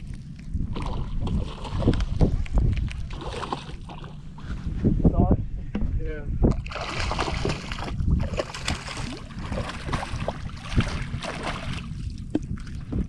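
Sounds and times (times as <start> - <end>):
wind on microphone: 0.0 - 13.0
fish thrashing and splashing: 2.8 - 4.2, 6.6 - 12.2.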